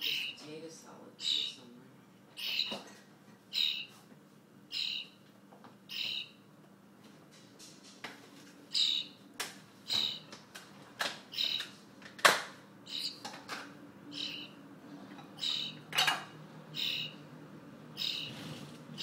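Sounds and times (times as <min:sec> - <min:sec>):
young bird calling: 0:00.0 - 0:00.4, 0:01.2 - 0:01.7, 0:02.4 - 0:02.8, 0:03.5 - 0:03.9, 0:04.7 - 0:05.2, 0:05.9 - 0:06.5, 0:08.7 - 0:09.2, 0:09.8 - 0:10.3, 0:11.3 - 0:11.7, 0:12.8 - 0:13.2, 0:14.1 - 0:14.6, 0:15.4 - 0:15.9, 0:16.7 - 0:17.3, 0:17.9 - 0:18.4.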